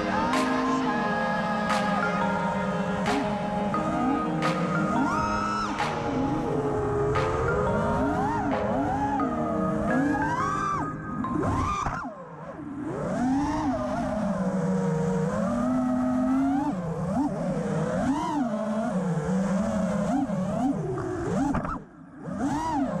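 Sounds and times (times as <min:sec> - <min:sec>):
drone motors buzzing whine: 0:00.0 - 0:23.0.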